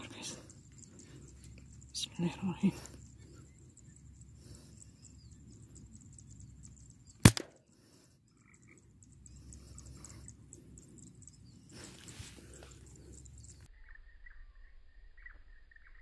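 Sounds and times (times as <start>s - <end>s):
air rifle shot: 7.2s - 7.6s.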